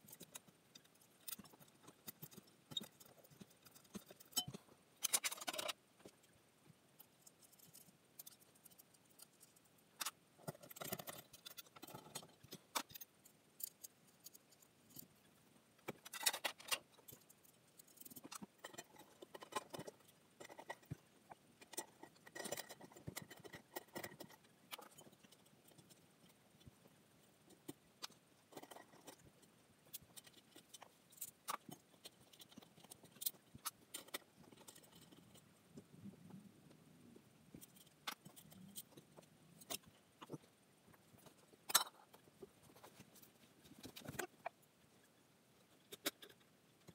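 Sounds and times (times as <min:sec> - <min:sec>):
small hardware clicks and clinks: 0:00.1 - 0:05.8.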